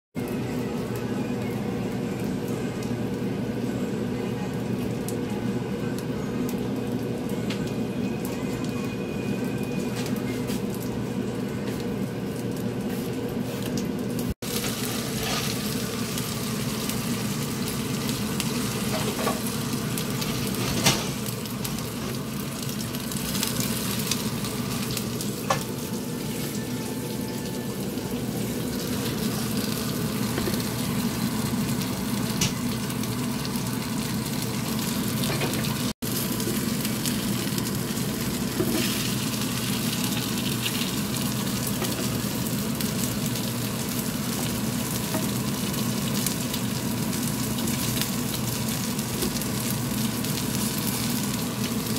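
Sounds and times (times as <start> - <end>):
fish sizzling in a frying pan: 14.2 - 51.9.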